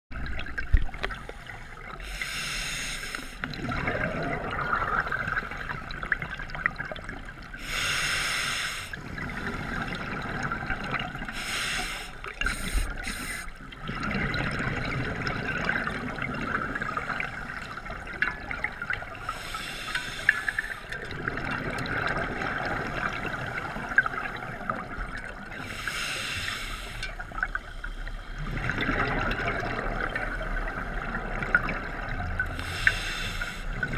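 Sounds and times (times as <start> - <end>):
regulator breathing hiss: 2.0 - 3.4, 7.6 - 9.0, 11.3 - 13.6, 19.3 - 20.9, 25.6 - 27.2, 32.6 - 33.8
exhaled bubbles rushing: 3.4 - 7.6, 9.0 - 11.4, 13.6 - 19.3, 20.6 - 25.7, 27.2 - 32.6.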